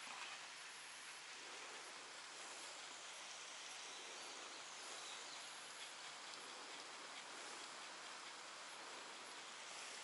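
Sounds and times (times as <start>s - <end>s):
light rain falling: 0.0s - 10.0s.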